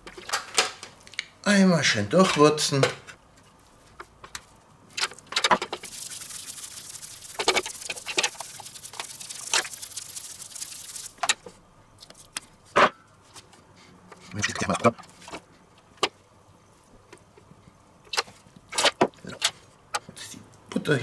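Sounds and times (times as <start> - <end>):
spice shaker rattling: 5.6 - 11.3
seasoning pattering on skin: 5.7 - 11.2.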